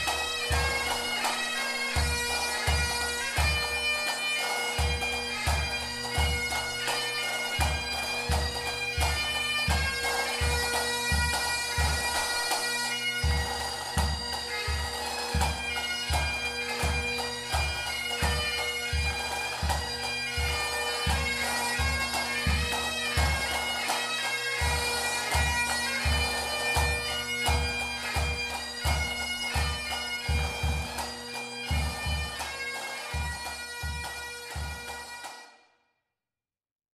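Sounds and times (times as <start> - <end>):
bagpipes playing melody: 0.0 - 35.6
drum beats: 13.2 - 24.0.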